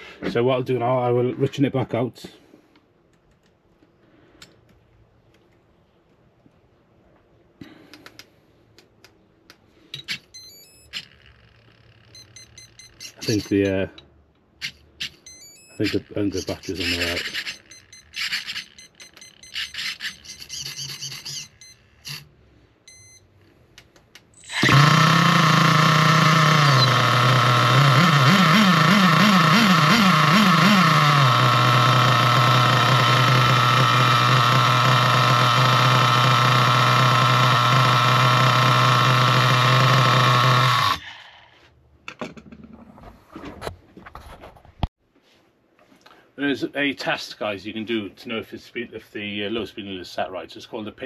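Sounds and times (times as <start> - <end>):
small nitro engine running: 24.4 - 41.2.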